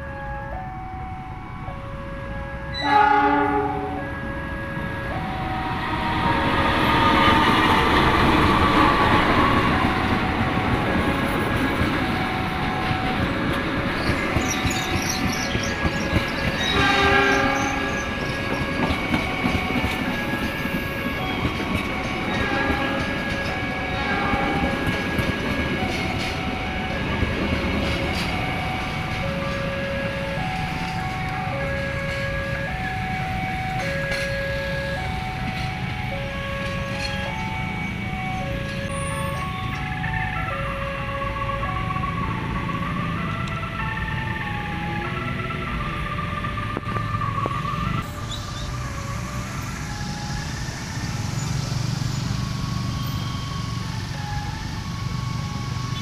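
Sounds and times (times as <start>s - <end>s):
train horn: 2.7s - 4.4s, 16.6s - 18.4s, 22.3s - 25.0s
train wheels clattering on rails: 6.7s - 29.8s.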